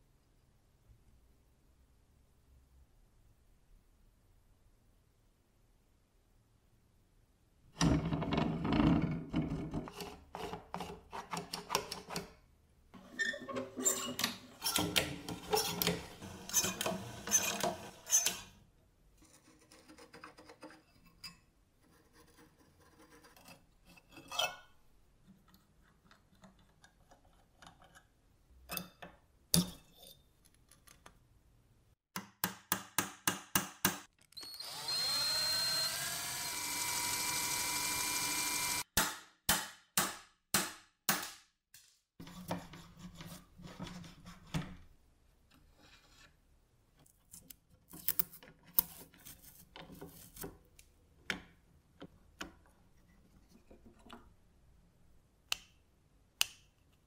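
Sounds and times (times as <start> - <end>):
drill press motor whining: 34.4 - 38.8.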